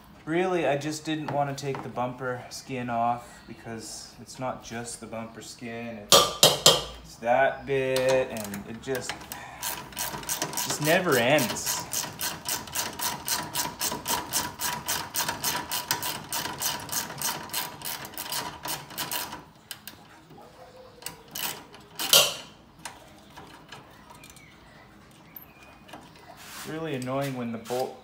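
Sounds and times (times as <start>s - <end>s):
socket ratchet clicking: 21.1s - 22.5s.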